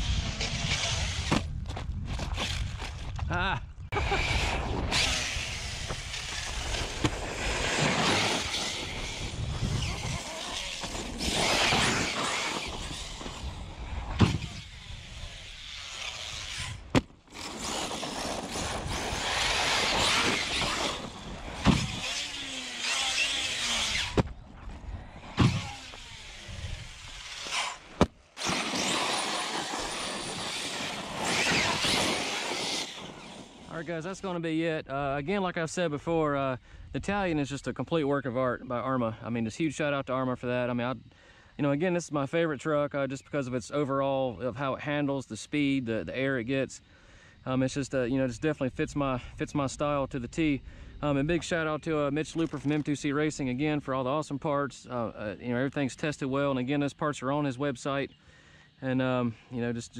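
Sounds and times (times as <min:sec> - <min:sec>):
rc truck motor and tyres rushing: 0:00.0 - 0:01.6, 0:02.2 - 0:03.0, 0:04.0 - 0:33.9.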